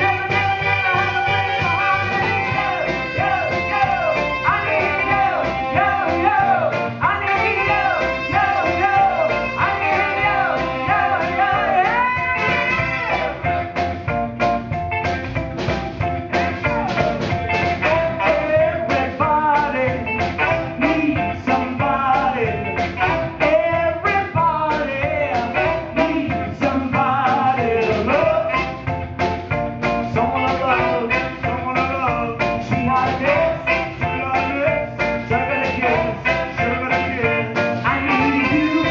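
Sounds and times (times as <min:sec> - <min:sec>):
saxophone: 0:00.0 - 0:06.3, 0:07.0 - 0:13.9, 0:37.9 - 0:38.9
woman singing: 0:00.0 - 0:06.4, 0:07.0 - 0:13.3, 0:35.6 - 0:38.9
drums beat: 0:00.0 - 0:38.9
electric bass: 0:00.0 - 0:38.9.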